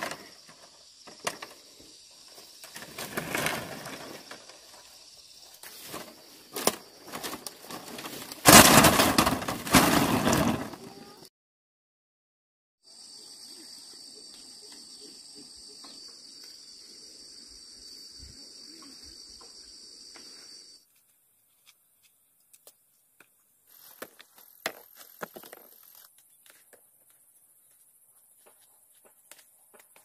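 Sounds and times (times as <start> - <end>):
high-pitched insect chorus: 0.0 - 11.2, 12.8 - 20.8
dry corn leaves rustling: 2.4 - 11.1, 23.7 - 26.6
clicks and knocks of corn: 5.9 - 10.8.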